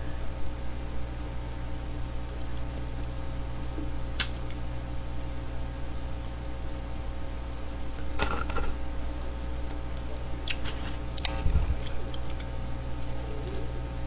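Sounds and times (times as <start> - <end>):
electrical hum: 0.0 - 14.0
chewing close to microphone: 8.0 - 13.8.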